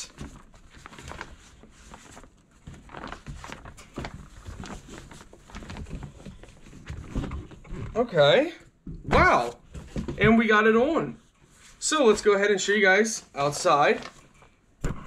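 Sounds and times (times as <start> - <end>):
fabric rustling: 0.0 - 8.2.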